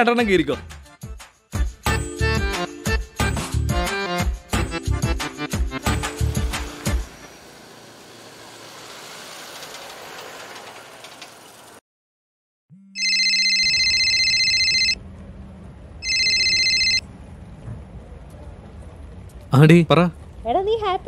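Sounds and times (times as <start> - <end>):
street traffic: 1.9 - 11.8, 13.0 - 21.0
mobile phone ringtone: 12.9 - 15.0, 16.0 - 17.0.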